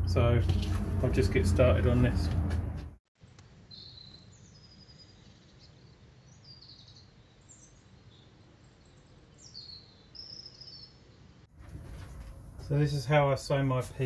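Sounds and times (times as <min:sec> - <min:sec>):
low background rumble: 0:00.0 - 0:03.0
faint songbird chirps: 0:03.3 - 0:11.5.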